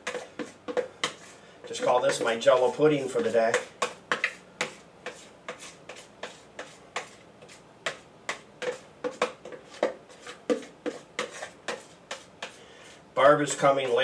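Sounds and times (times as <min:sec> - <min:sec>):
spoon scraping plastic bowl: 0:00.0 - 0:14.0.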